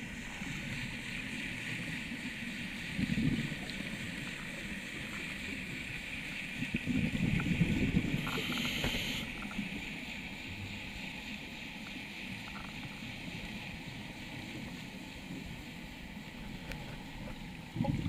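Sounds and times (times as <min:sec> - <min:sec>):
low wash of water: 0:00.0 - 0:18.0
bubbles gurgling: 0:06.5 - 0:09.4, 0:17.6 - 0:18.0
diver breathing through regulator: 0:08.2 - 0:09.4.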